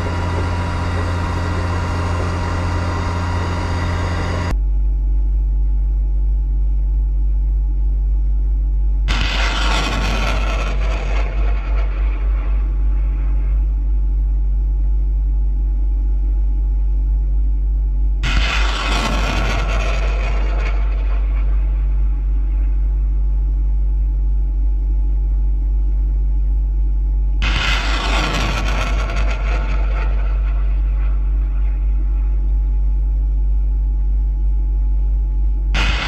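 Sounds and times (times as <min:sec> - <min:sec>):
rocket launch roar: 0:00.0 - 0:04.5, 0:09.1 - 0:12.8, 0:18.2 - 0:21.6, 0:27.4 - 0:32.1, 0:35.8 - 0:36.0
low engine rumble: 0:00.0 - 0:36.0.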